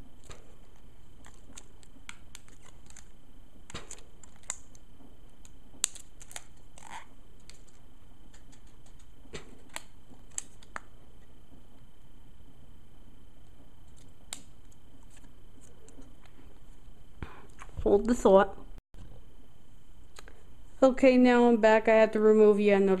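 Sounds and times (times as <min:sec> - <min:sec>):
plastic packaging clicks and crackles: 0:00.2 - 0:03.1, 0:03.7 - 0:04.8, 0:05.4 - 0:10.9.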